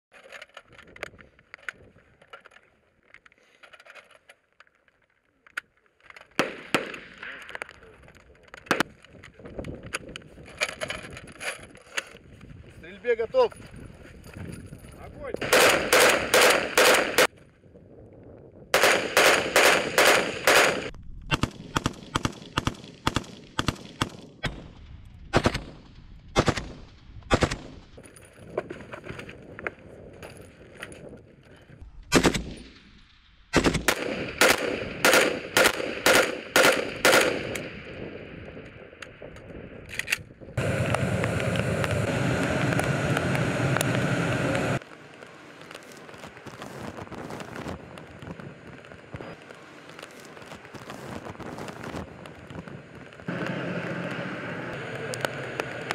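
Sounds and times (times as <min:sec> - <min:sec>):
rifle gunshots: 0:06.4 - 0:07.3, 0:15.4 - 0:17.3, 0:18.8 - 0:24.7, 0:25.3 - 0:27.9, 0:32.1 - 0:32.8, 0:33.5 - 0:38.0
steady loud noise: 0:40.6 - 0:48.3, 0:51.0 - 0:55.9.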